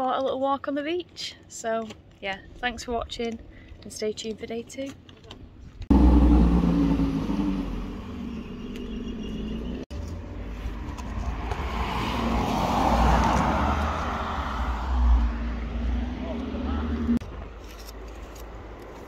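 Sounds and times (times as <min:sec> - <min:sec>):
steady low rumble: 0:05.8 - 0:08.8
car driving past: 0:05.9 - 0:09.9, 0:11.3 - 0:17.2.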